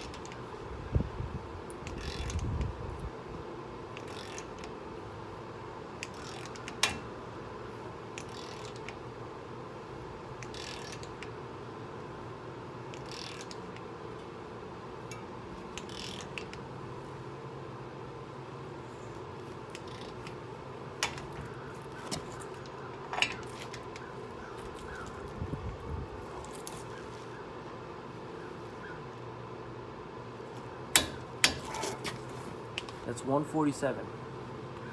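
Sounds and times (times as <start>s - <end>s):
torque wrench ratcheting: 1.8s - 2.6s, 4.0s - 4.7s, 6.0s - 7.0s, 8.2s - 9.0s, 10.4s - 11.3s, 12.9s - 13.8s, 15.1s - 16.6s, 19.7s - 20.4s.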